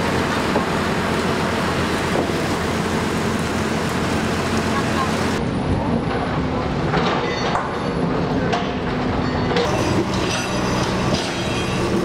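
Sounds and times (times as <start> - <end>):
diesel construction machinery running: 0.0 - 12.0
high metallic squealing: 9.7 - 12.0.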